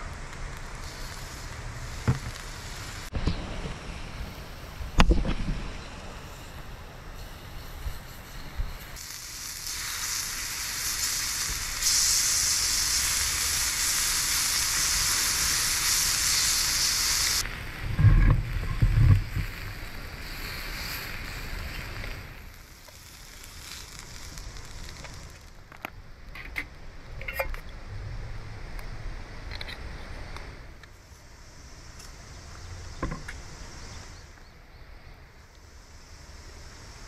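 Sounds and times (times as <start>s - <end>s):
meat sizzling in a skillet: 0.6s - 3.1s, 7.3s - 25.5s.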